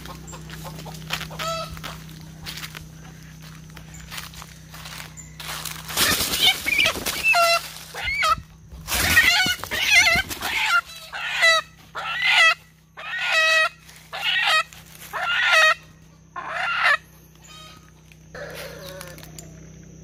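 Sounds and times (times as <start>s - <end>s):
chicken squawking in distress: 5.9s - 15.8s, 16.4s - 17.8s.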